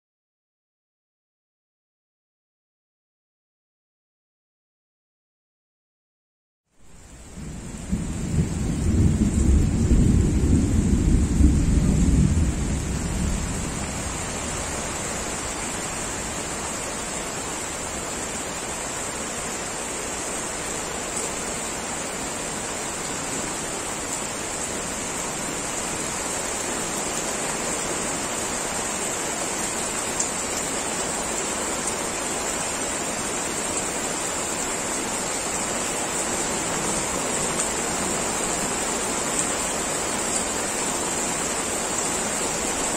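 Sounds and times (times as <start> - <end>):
heavy rain falling: 6.8 - 42.9
low rumble of thunder: 7.3 - 15.4.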